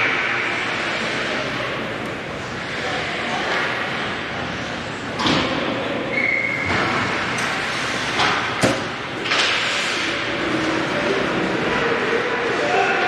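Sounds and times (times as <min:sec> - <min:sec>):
puck and sticks hitting boards: 0:08.1 - 0:10.0.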